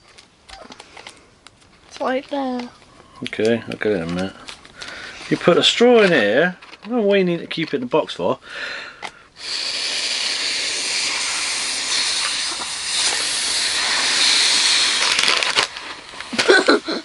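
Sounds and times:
man blowing through a straw: 9.4 - 17.0.

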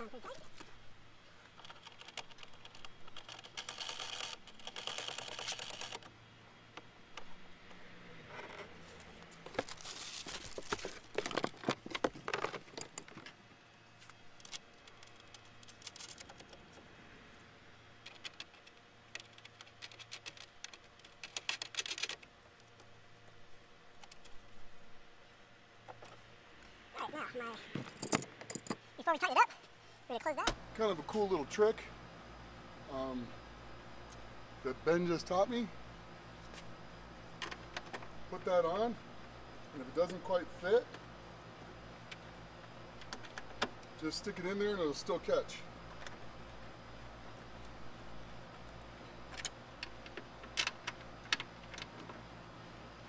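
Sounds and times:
plastic parts clicking and rustling: 1.5 - 6.1, 9.4 - 13.4, 14.4 - 16.8, 18.0 - 22.9.

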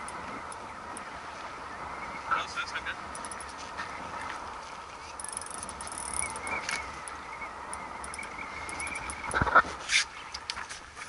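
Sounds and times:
sea noise: 0.0 - 11.0
wind: 0.0 - 11.0
fishing reel drag buzzing: 5.2 - 9.4.

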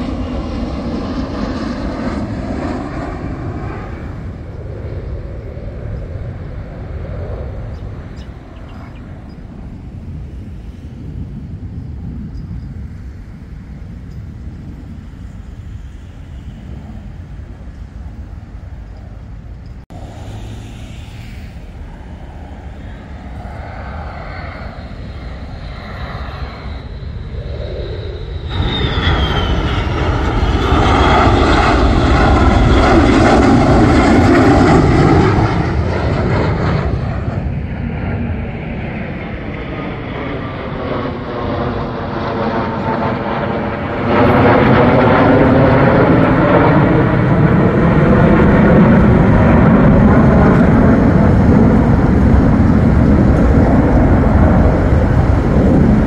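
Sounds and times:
fighter jets flying over: 0.0 - 56.0.

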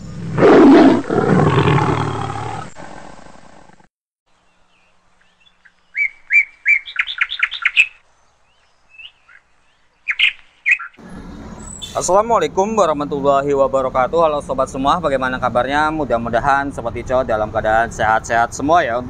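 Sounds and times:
songbird singing sharp notes: 4.3 - 12.0.

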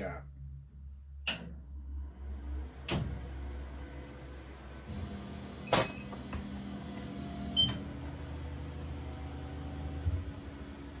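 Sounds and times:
laser cutter humming: 4.8 - 11.0.

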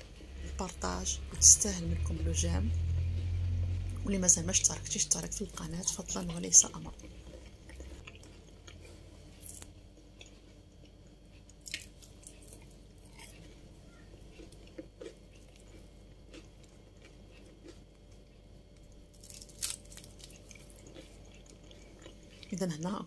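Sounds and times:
pastry crunching: 5.4 - 22.8.

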